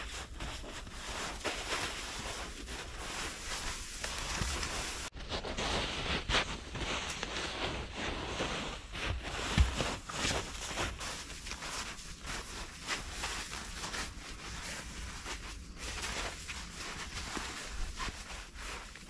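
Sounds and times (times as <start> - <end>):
footsteps crunching in snow: 0.0 - 19.0.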